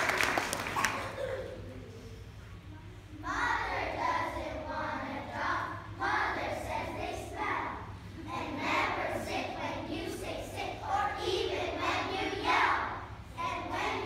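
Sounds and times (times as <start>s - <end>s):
children's choir singing: 3.2s - 14.0s.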